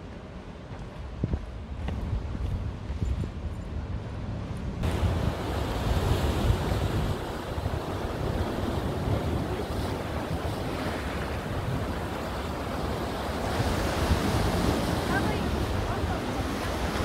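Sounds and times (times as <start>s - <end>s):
wind buffeting microphone: 0.7s - 17.0s
waves breaking against rocks: 4.9s - 17.0s.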